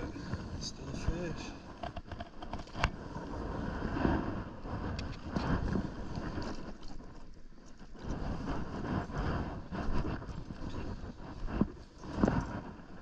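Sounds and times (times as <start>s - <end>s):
wind buffeting microphone: 0.0s - 13.0s
water sloshing around boots: 5.0s - 8.7s.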